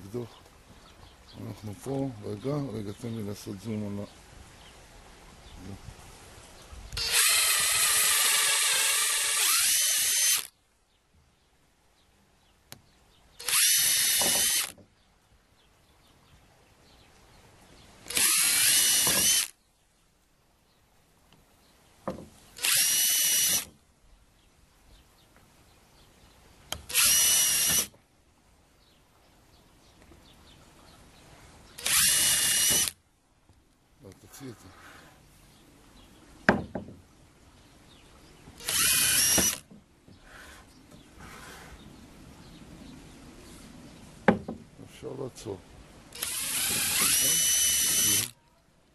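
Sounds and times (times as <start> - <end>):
electric drill boring into wood: 7.0 - 10.5, 13.4 - 14.8, 18.1 - 19.5, 22.6 - 23.7, 26.7 - 27.9, 31.8 - 33.0, 38.6 - 39.7, 46.2 - 48.3.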